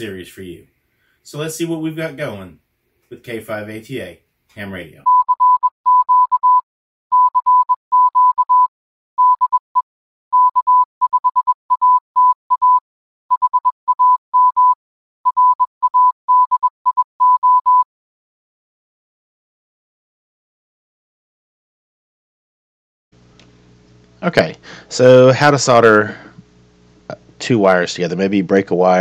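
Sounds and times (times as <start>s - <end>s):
morse code beeps: 5.1s - 17.9s.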